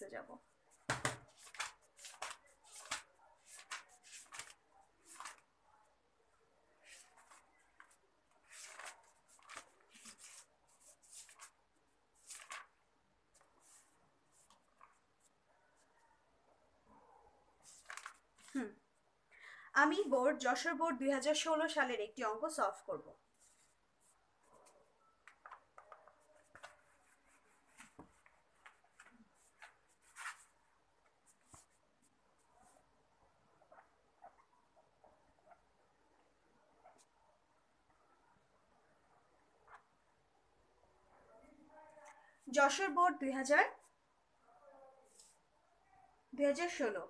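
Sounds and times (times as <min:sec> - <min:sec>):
soft rustling and handling: 0:00.4 - 0:16.3, 0:16.9 - 0:18.8, 0:23.2 - 0:38.0, 0:44.9 - 0:45.6.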